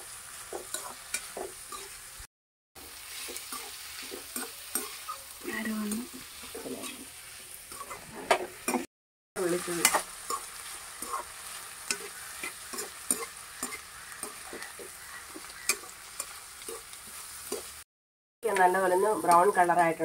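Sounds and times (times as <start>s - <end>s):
vegetables sizzling in hot oil: 0.0s - 20.0s
spatula scraping pan: 0.5s - 2.0s, 3.0s - 8.9s, 9.5s - 17.8s.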